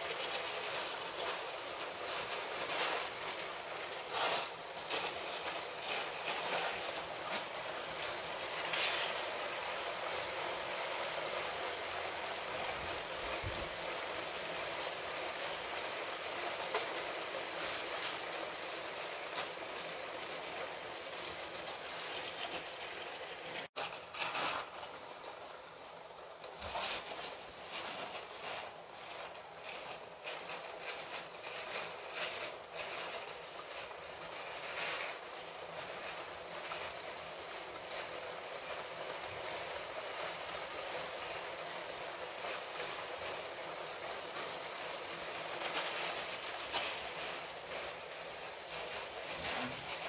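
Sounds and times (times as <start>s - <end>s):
toy train motors whirring: 0.0s - 50.0s
wheels clicking over track: 0.0s - 50.0s.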